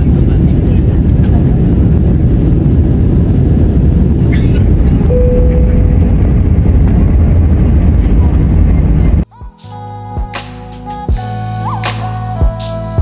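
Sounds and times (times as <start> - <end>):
low rumble of aircraft engines: 0.0 - 9.3
brief steady tone: 5.1 - 6.4.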